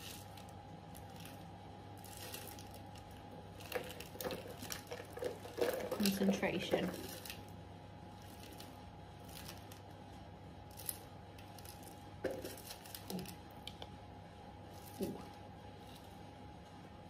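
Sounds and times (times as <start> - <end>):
steady low hum: 0.0 - 17.0
hand rummaging in metal tin: 3.7 - 7.2.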